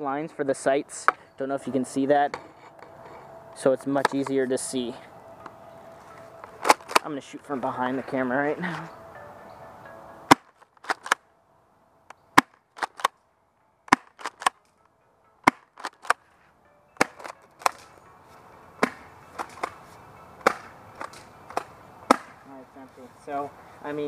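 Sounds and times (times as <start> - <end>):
airsoft shotgun shots: 20.4 - 22.4.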